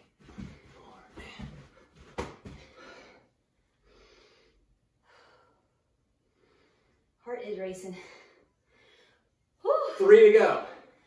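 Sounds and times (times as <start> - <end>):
person breathing heavily: 0.4 - 7.1.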